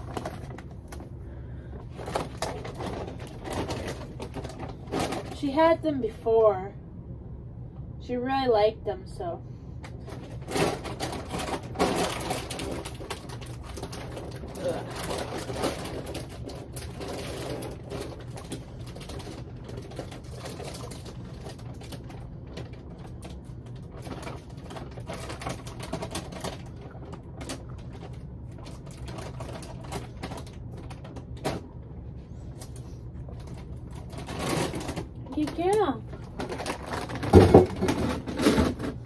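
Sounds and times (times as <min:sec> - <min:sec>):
puppy crunching dog treats: 0:10.0 - 0:39.0.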